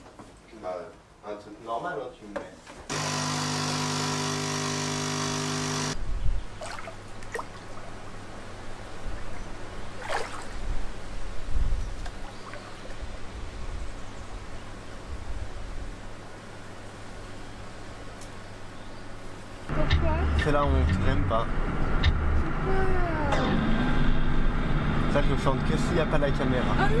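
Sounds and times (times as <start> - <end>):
coffee machine pump buzzing: 2.9 - 6.0
low steady rumble: 19.7 - 27.0.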